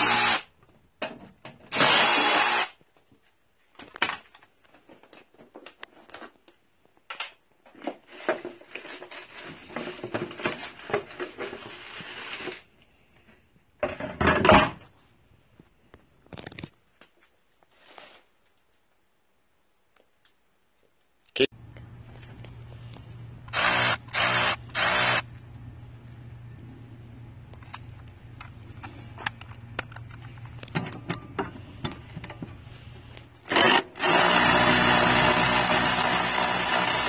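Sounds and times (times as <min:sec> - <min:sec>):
scraping and rustling: 0:07.7 - 0:12.7.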